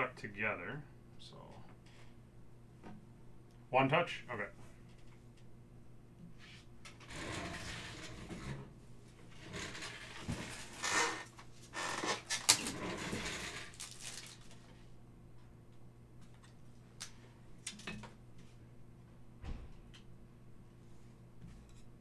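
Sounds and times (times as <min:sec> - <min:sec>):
rustling and handling noises: 0:06.4 - 0:15.5.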